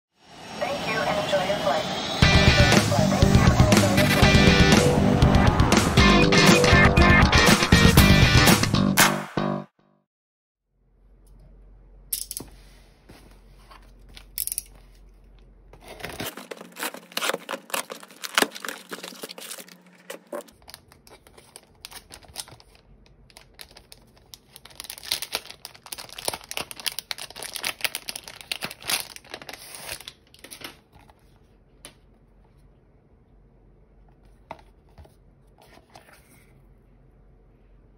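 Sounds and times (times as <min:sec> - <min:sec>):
parcel handling noise: 0:12.1 - 0:12.7, 0:13.7 - 0:25.6
plastic and tape tearing and crinkling: 0:15.8 - 0:31.1.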